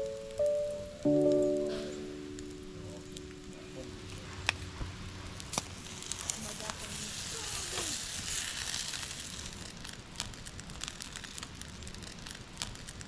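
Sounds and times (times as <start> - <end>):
sizzling hiss with crackles: 0.0 - 13.0.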